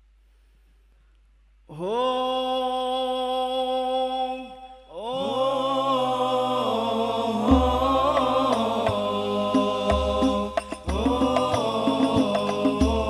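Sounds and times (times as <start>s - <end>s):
deep drum strokes and taps: 7.4s - 13.0s.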